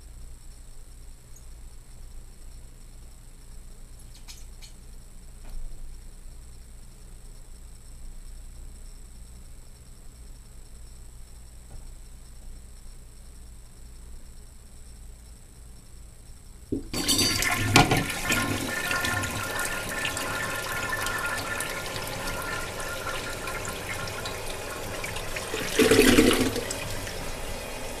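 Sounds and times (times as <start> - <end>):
toilet flushing: 16.9 - 28.0
water swirling in toilet bowl: 17.0 - 28.0.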